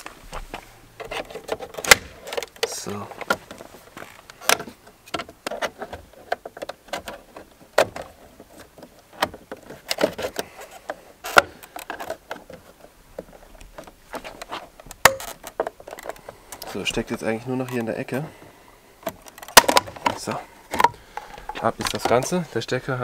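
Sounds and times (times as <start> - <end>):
plastic clips clicking and creaking: 1.0 - 22.7
plastic snaps: 19.0 - 22.3.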